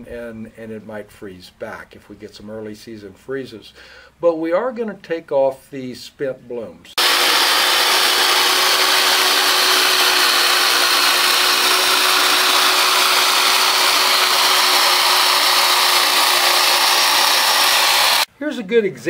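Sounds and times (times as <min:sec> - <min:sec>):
electric hedge trimmer whine: 0:07.0 - 0:18.3.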